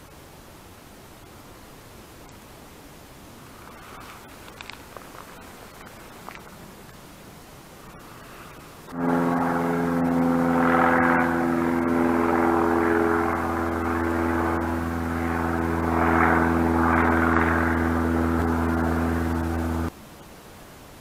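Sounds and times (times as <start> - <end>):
hiss: 0.1 - 9.0
drone of low tones: 8.8 - 19.9.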